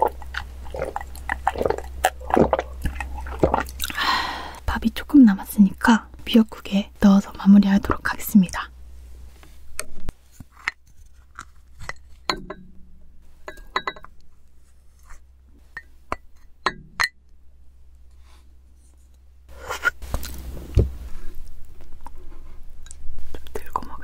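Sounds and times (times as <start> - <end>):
dull thump: 20.5 - 21.0.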